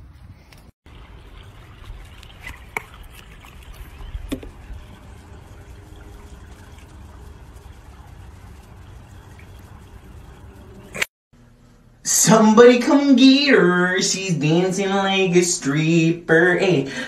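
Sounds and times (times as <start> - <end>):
pool water lapping: 0.8 - 11.1
low steady rumble: 0.9 - 12.8.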